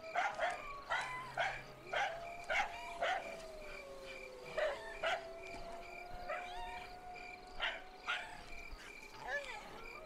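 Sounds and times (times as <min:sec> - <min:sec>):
insects chirping: 0:00.0 - 0:10.0
dogs barking: 0:00.1 - 0:03.4, 0:04.5 - 0:05.4, 0:07.6 - 0:08.5
dog howling: 0:00.2 - 0:08.6.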